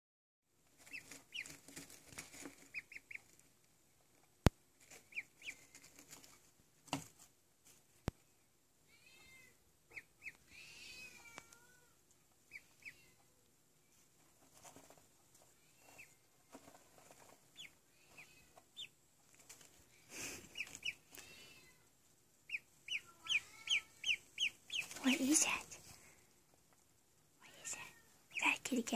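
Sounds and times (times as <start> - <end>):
duckling peeping: 0.8 - 3.4, 4.9 - 6.0, 9.9 - 11.4, 12.4 - 13.2, 15.8 - 16.3, 17.1 - 19.0, 20.2 - 21.4, 22.4 - 25.7, 28.3 - 28.6.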